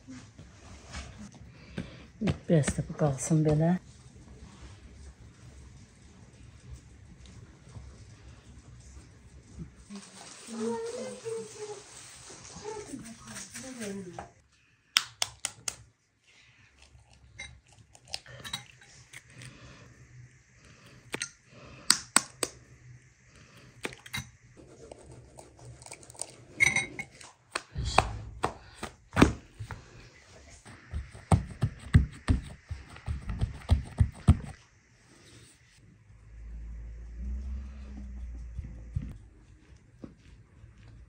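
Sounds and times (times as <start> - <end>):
eggs cracking: 23.6 - 24.2
hands patting dough in pan: 27.5 - 29.9, 30.6 - 34.6.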